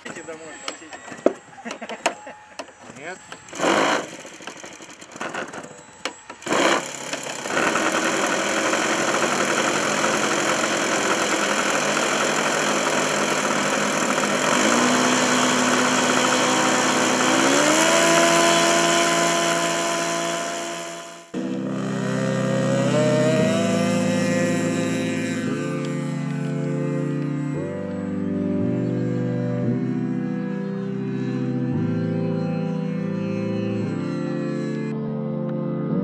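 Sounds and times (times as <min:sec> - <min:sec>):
model aircraft engine starting and running: 0:01.6 - 0:28.8.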